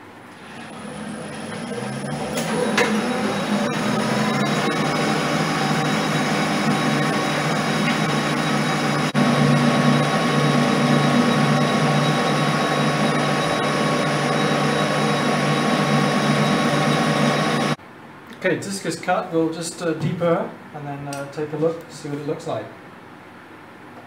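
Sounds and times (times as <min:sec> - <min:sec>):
lathe running: 0:00.3 - 0:17.8
tool cutting steel sheet: 0:00.4 - 0:17.8.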